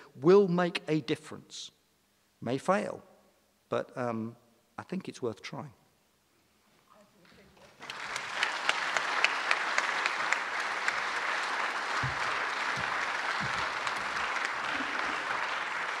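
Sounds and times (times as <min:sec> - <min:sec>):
audience applauding: 0:07.8 - 0:16.0
low thuds: 0:12.0 - 0:14.2.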